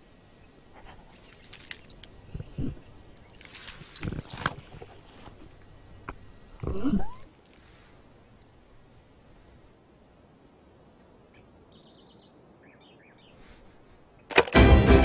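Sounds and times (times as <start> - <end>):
faint outdoor ambience: 0.0 - 15.0
faint bird chirps: 5.9 - 8.7, 11.2 - 14.3
plucked-string folk music: 14.4 - 15.0.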